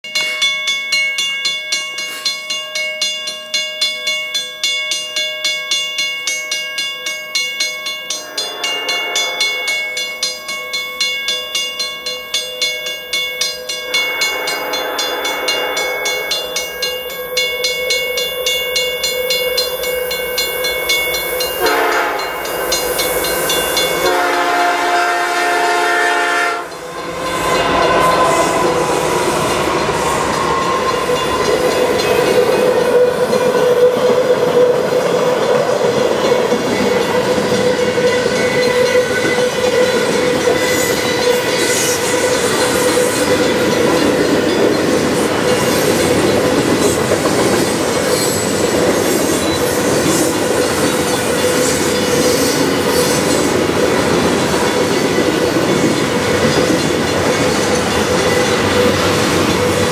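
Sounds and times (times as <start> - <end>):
crossing bell ringing: 0.0 - 59.9
train wheel noise: 8.0 - 59.9
locomotive horn: 8.4 - 9.9, 14.0 - 16.8, 21.6 - 22.5, 23.9 - 32.0
locomotive engine rumble: 26.2 - 33.4.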